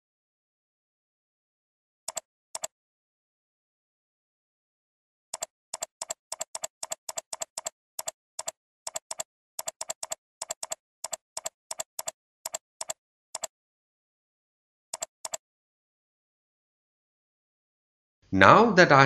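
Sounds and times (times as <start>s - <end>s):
sharp computer clicks: 2.1s - 2.7s, 5.4s - 13.5s, 14.9s - 15.4s.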